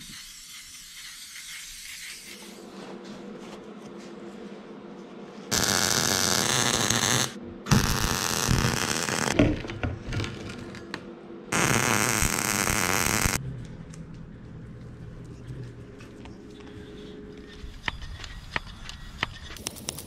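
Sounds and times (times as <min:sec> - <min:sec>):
welder arc crackling: 0:05.5 - 0:09.4, 0:11.5 - 0:13.4.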